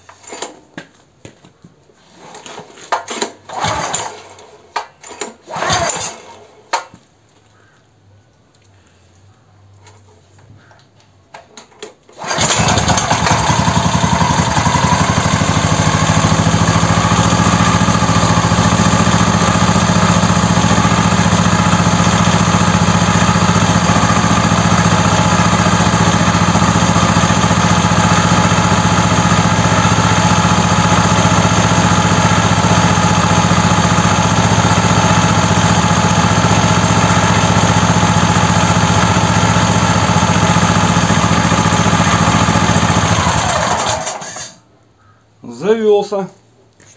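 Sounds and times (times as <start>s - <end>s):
pull cord engine start: 2.1s - 6.9s, 11.3s - 44.6s
petrol engine running steadily: 3.5s - 4.1s, 12.2s - 44.3s.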